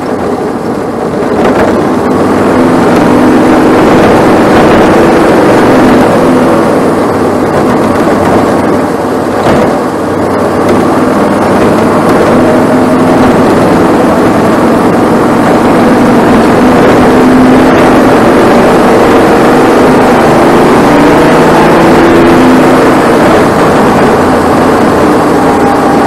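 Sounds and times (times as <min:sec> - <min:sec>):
race car engine at high revs: 0:00.0 - 0:26.0.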